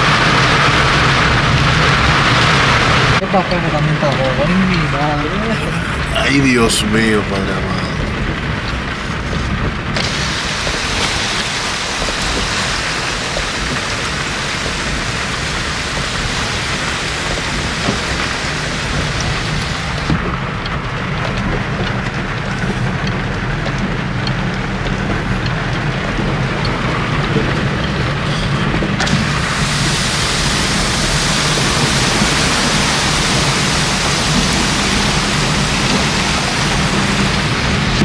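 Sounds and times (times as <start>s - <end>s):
heavy rain: 0.0s - 38.0s
low engine hum: 0.0s - 38.0s
tyres hissing through water: 10.0s - 20.1s, 28.2s - 38.0s.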